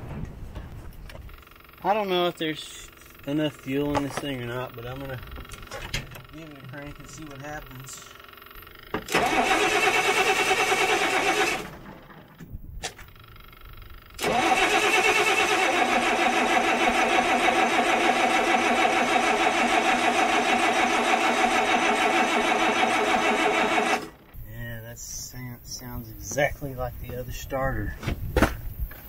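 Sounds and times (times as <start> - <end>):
diesel engine cranking: 0.0 - 24.5
starter motor whine: 2.9 - 12.4, 13.0 - 24.4.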